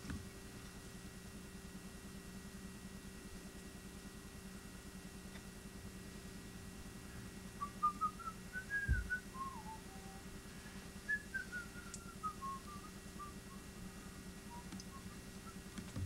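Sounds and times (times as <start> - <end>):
steady low hum: 0.0 - 16.0
person whistling a tune: 7.6 - 10.3, 11.0 - 15.7
dull low thump: 8.8 - 9.1.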